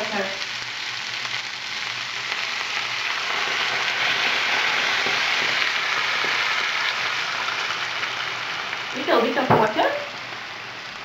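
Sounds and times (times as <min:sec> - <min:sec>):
meat and onions sizzling in butter: 0:00.0 - 0:11.0.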